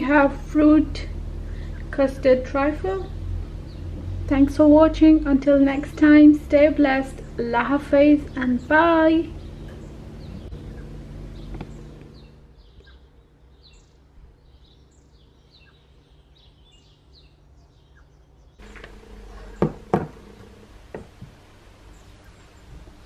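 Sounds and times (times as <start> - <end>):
low steady hum: 0.0 - 23.0
small birds chirping: 0.0 - 23.0
sharp knocks: 18.6 - 21.4.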